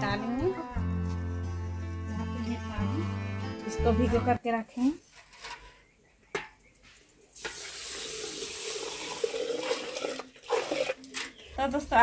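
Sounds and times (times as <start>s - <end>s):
water pouring into pot: 7.3s - 11.2s.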